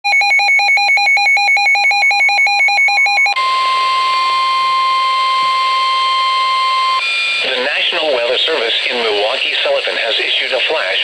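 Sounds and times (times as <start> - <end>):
steady alarm tone: 0.1 - 8.6.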